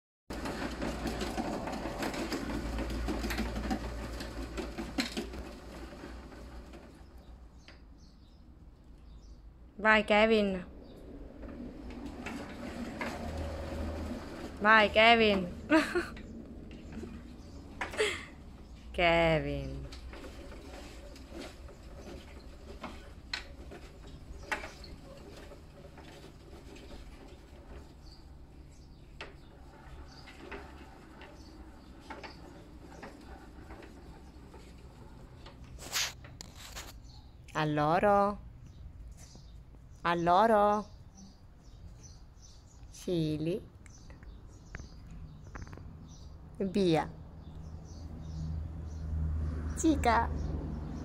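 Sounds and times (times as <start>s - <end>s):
wheel knocks: 0.3s - 7.8s
cat exercise wheel rumbling: 0.3s - 51.0s.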